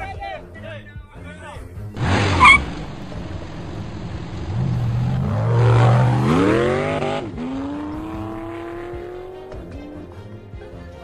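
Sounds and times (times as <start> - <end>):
vehicle engine accelerating: 2.0 - 9.8.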